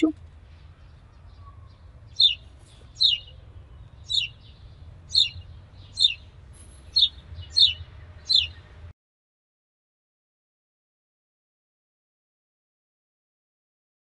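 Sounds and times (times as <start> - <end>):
bird calling: 1.4 - 6.3, 6.9 - 8.7.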